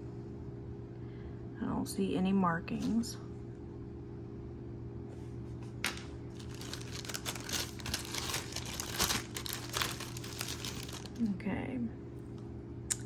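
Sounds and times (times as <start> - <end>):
plastic bag crinkling: 5.9 - 11.3.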